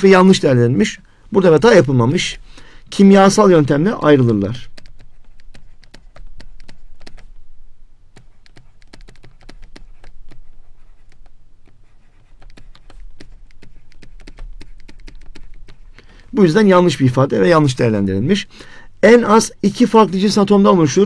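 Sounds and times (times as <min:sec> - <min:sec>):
stylus tapping and scratching: 0:03.2 - 0:07.4, 0:08.1 - 0:16.2.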